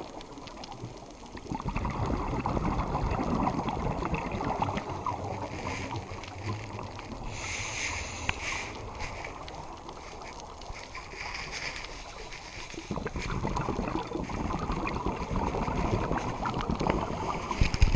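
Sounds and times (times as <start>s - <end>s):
exhaled bubbles rushing: 0.0s - 17.9s
regulator inhale hiss: 7.2s - 9.4s.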